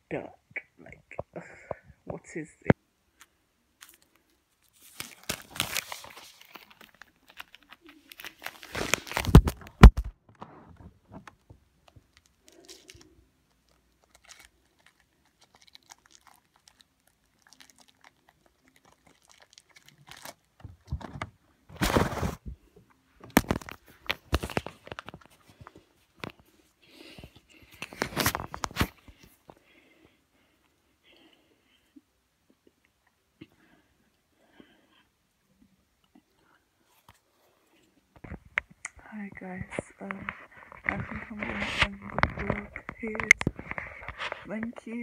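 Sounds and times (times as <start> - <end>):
wrapper crinkling and tearing: 3.2 - 10.2, 11.2 - 22.4, 23.2 - 26.4, 27.0 - 29.3.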